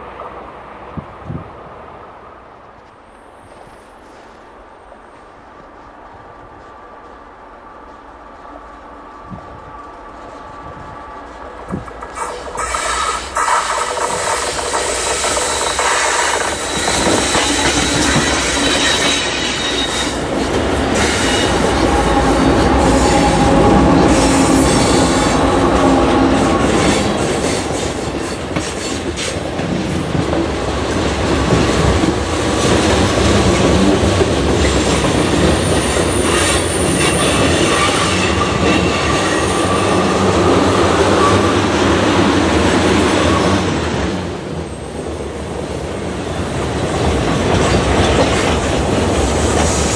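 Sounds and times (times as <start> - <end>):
diesel locomotives passing: 0.0 - 49.9
train wheels rumbling on rail: 0.0 - 49.9
wheel squeal: 12.2 - 20.2, 35.5 - 40.2.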